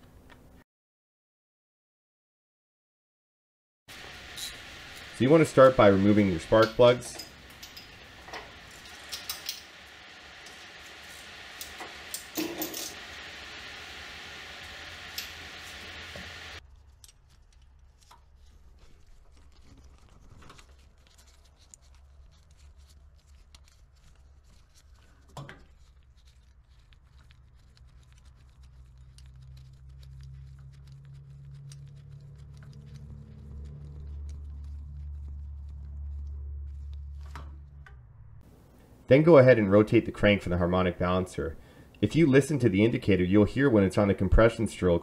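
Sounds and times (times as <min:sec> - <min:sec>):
tools clicking and rubbing: 0:04.4 - 0:13.0, 0:16.6 - 0:37.8
low rumble: 0:29.6 - 0:38.4.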